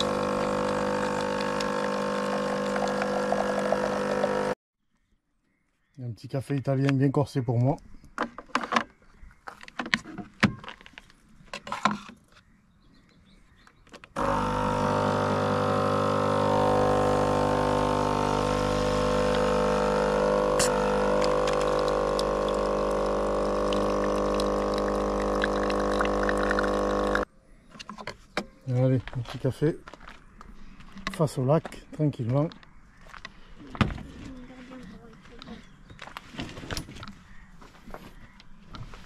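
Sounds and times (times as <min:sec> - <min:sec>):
espresso machine pump buzzing: 0:00.0 - 0:04.6, 0:14.2 - 0:27.3.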